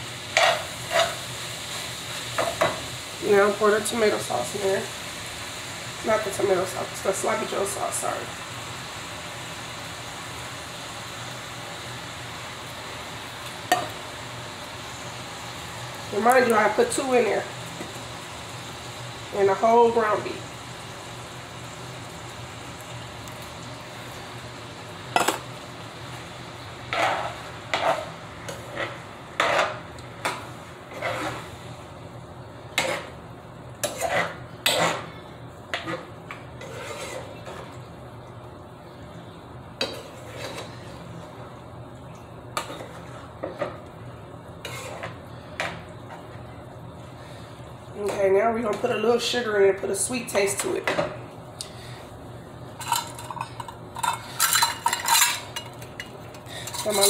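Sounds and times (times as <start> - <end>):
meat sizzling in a skillet: 0.0 - 37.6
utensil scraping a skillet: 0.3 - 1.5, 26.8 - 31.7, 32.7 - 33.2, 33.8 - 37.8, 39.8 - 41.1, 42.6 - 43.7, 44.6 - 45.8, 52.8 - 57.0.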